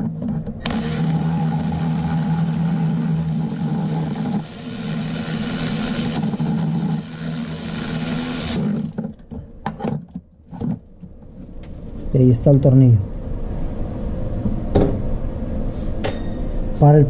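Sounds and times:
electric ratchet motor humming: 0.6s - 9.1s.

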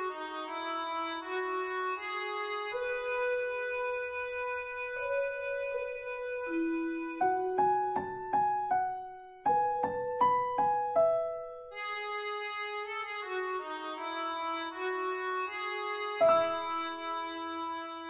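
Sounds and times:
keyboard chords: 0.0s - 18.0s
piano notes ringing: 0.0s - 18.0s.

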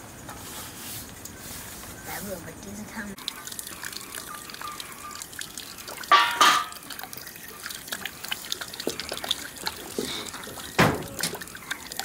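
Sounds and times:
water dripping: 2.6s - 12.0s
water pouring into a pan: 3.2s - 12.0s.

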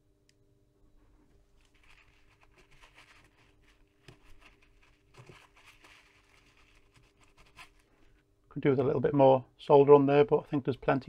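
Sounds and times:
fingertips handling a circuit board: 1.5s - 8.1s.

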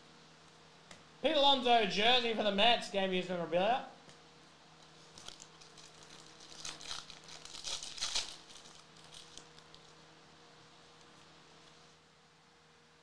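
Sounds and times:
foil wrapper crinkling: 5.0s - 10.0s
cards rustling: 5.1s - 9.9s.

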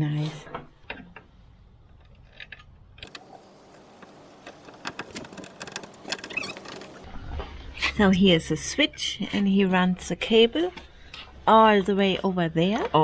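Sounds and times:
metal parts clicking and jingling: 3.0s - 7.1s.

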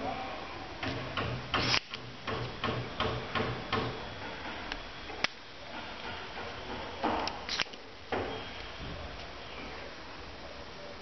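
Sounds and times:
sharp click: 1.6s - 2.5s.

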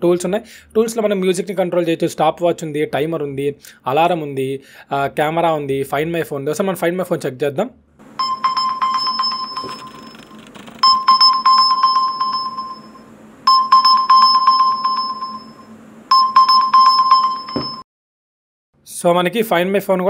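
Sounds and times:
phone electronic ringing alert: 8.1s - 17.8s.

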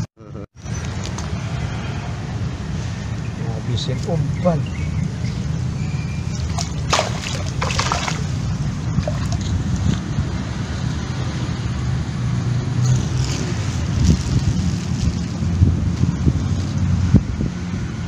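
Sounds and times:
net rustling against grass: 6.3s - 10.1s, 12.9s - 17.1s.

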